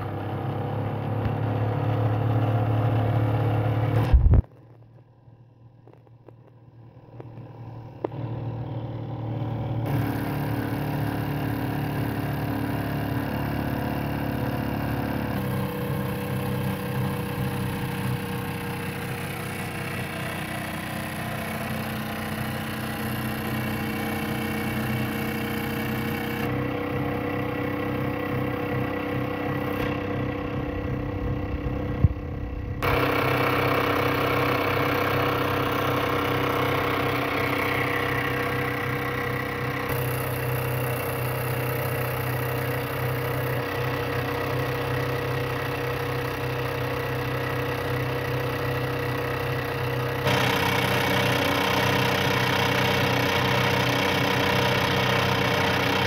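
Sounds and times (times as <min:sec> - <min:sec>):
model steam engine chuffing: 0:09.9 - 0:30.3, 0:32.8 - 0:56.0.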